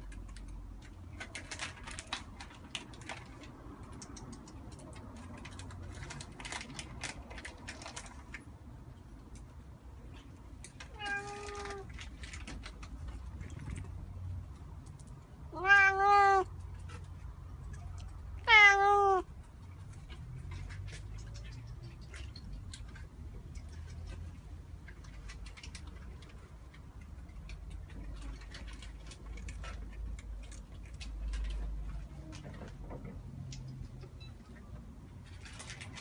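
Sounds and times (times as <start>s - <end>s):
cat meowing: 10.8s - 11.9s, 15.5s - 16.6s, 18.4s - 19.3s.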